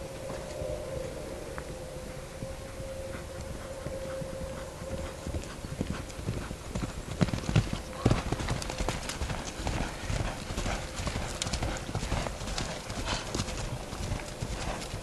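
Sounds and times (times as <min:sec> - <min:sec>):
horse hooves cantering on grass: 0:01.6 - 0:15.0.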